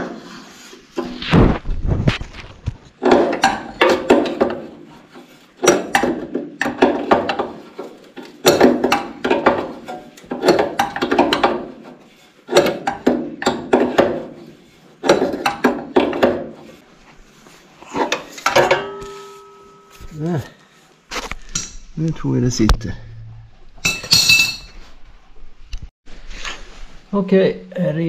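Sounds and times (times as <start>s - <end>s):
short metallic ring: 18.7s - 20.0s.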